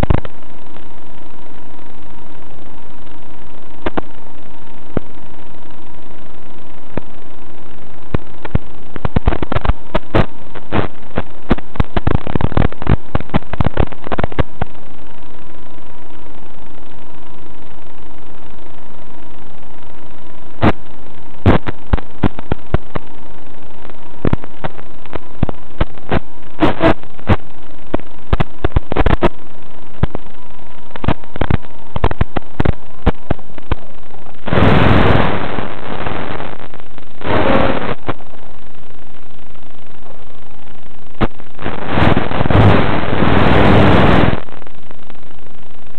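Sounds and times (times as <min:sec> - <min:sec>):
faint steady whine: 0:00.0 - 0:45.9
loud steady radio noise: 0:00.0 - 0:45.9
sharp clicks and crackles: 0:00.0 - 0:45.9.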